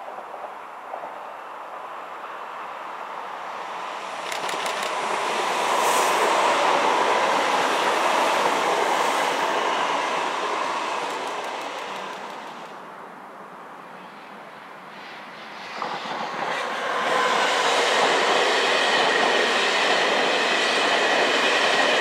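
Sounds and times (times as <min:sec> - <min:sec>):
electric train rushing past: 0:02.3 - 0:12.9, 0:14.8 - 0:22.0
train wheels clicking: 0:04.1 - 0:06.5, 0:08.2 - 0:12.7.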